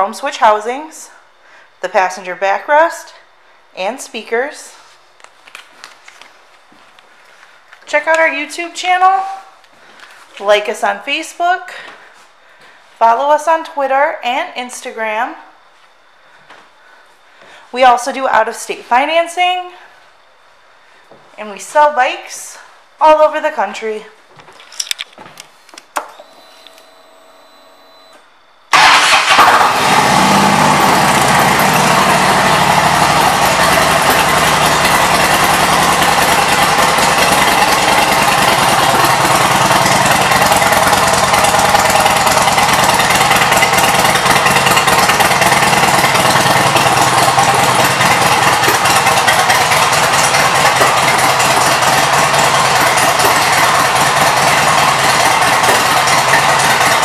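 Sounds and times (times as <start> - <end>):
motorcycle engine idling: 29.8 - 57.0.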